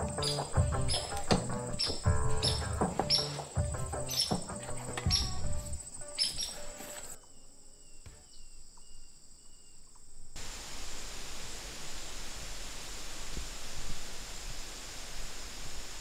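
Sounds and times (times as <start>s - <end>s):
music: 0.0s - 7.2s
faint high chirps: 0.0s - 10.0s
steady outdoor hiss: 0.0s - 16.0s.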